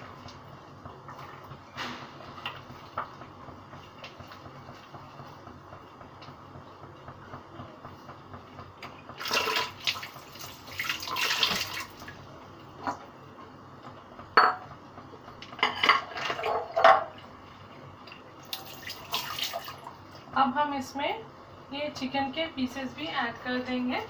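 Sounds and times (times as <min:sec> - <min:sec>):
running water: 0:09.2 - 0:12.2, 0:18.0 - 0:20.1
dishes and pots clattering: 0:14.4 - 0:14.7, 0:15.4 - 0:17.2.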